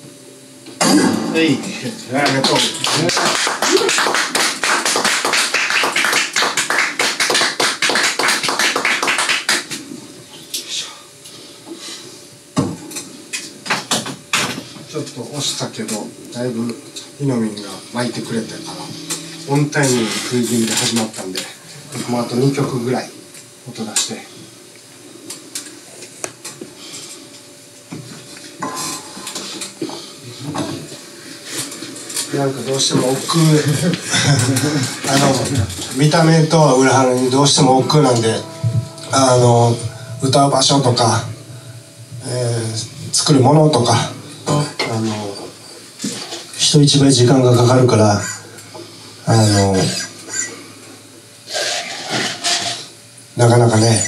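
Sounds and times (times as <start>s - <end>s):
audience applauding: 2.2s - 9.8s.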